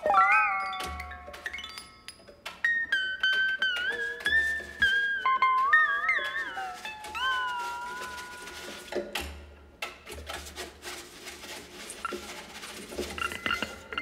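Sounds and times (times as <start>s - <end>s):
slide guitar gliding tone: 0.0s - 1.7s, 2.7s - 8.9s
scraping on guitar strings: 2.8s - 9.3s, 10.2s - 14.0s.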